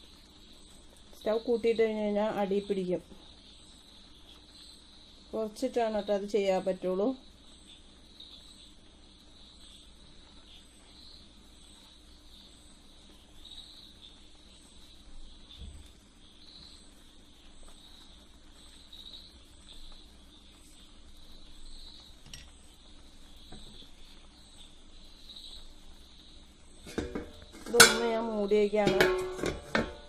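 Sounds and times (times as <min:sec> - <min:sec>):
crickets chirping: 0:00.0 - 0:30.0
kitchenware clinking: 0:26.8 - 0:30.0.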